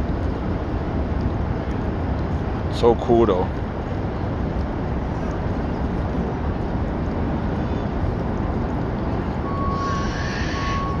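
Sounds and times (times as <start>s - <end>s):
low background roar: 0.0s - 11.0s
thin high steady tone: 9.3s - 11.0s.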